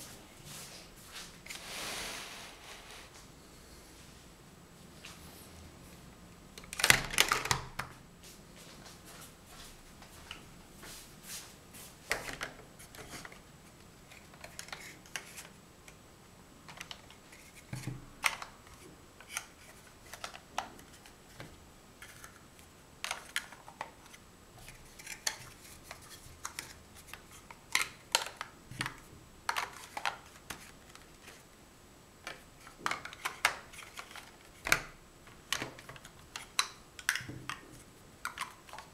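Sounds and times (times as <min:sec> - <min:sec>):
plastic building blocks clicking: 0:06.6 - 0:07.9, 0:32.2 - 0:37.6, 0:38.2 - 0:38.9.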